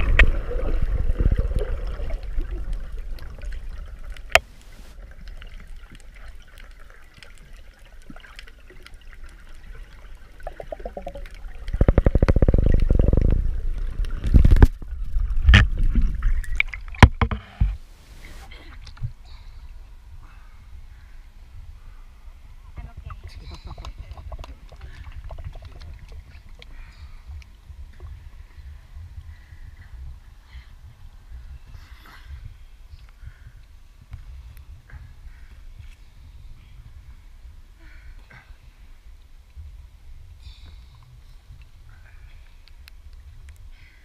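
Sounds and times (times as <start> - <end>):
rapid underwater pulsing: 0.0 - 17.3
underwater rumble: 0.0 - 44.0.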